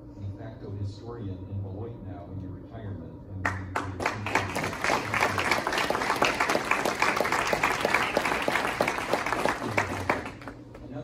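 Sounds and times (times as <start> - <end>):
audience applauding: 3.5 - 10.6.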